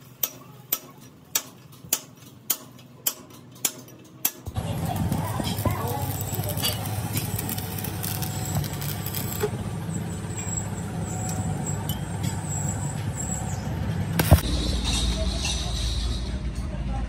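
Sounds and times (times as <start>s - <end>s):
welding arc crackling: 4.5s - 11.8s, 14.1s - 14.4s
low engine rumble: 4.5s - 17.0s.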